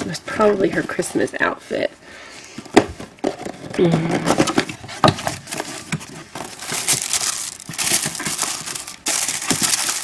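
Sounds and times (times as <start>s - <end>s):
tissue paper crinkling: 5.4s - 10.0s.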